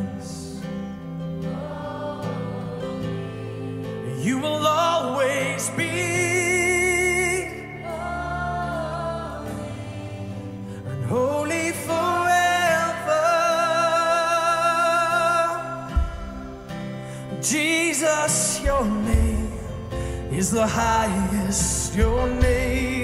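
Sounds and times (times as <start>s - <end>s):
man singing with vibrato: 0.0s - 0.8s, 2.4s - 23.0s
strummed acoustic guitar: 0.0s - 23.0s
singer breathing: 10.4s - 11.0s, 16.5s - 17.4s, 19.8s - 20.3s.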